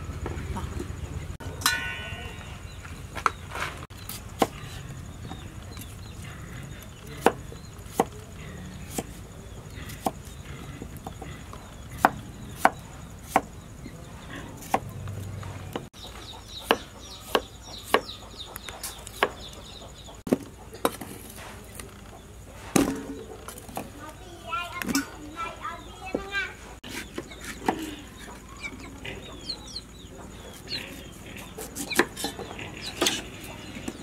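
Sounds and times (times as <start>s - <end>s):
knife chopping on wooden board: 7.2s - 8.2s, 12.0s - 13.6s, 14.6s - 14.9s, 16.6s - 18.1s.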